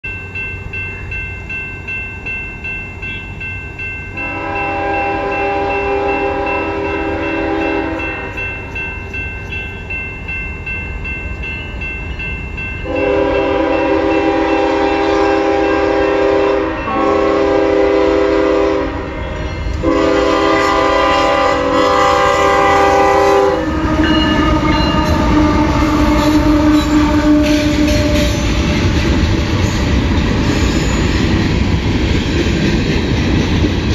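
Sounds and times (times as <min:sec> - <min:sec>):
train rumble: 0:00.0 - 0:33.9
locomotive air horn: 0:04.2 - 0:08.3, 0:12.8 - 0:28.6.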